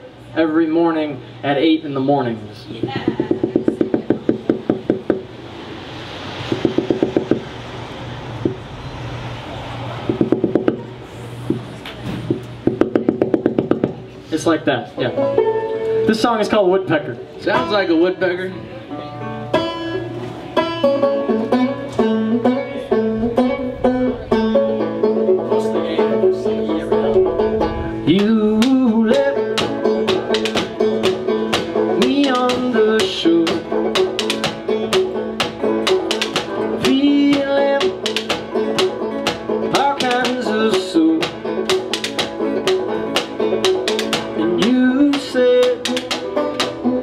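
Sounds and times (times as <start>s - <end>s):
banjo picking: 10.0s - 47.0s
lap slide guitar: 18.5s - 47.0s
drumsticks clicking on wooden box: 41.7s - 44.3s, 45.2s - 46.8s.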